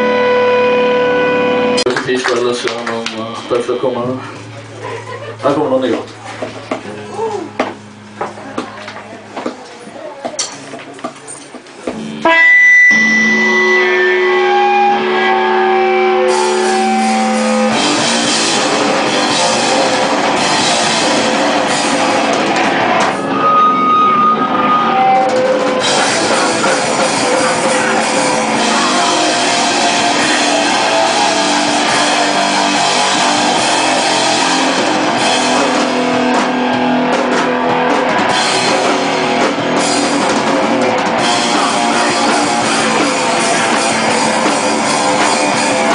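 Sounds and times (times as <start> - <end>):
ringing guitar chord: 0.0 - 2.0, 12.0 - 45.9
rock band playing loud: 0.0 - 45.9.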